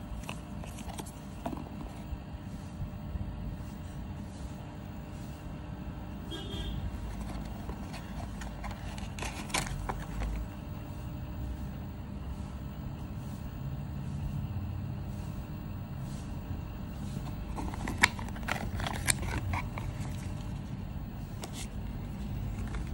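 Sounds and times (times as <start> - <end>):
cardboard box clicks and rustles: 0.2 - 2.1, 7.0 - 10.5, 17.2 - 20.7, 21.4 - 22.9.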